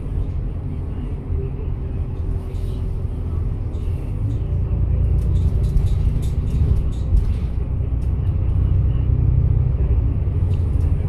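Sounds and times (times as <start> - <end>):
bus engine and road rumble: 0.0 - 11.0
light rattles and clicks: 3.6 - 8.6.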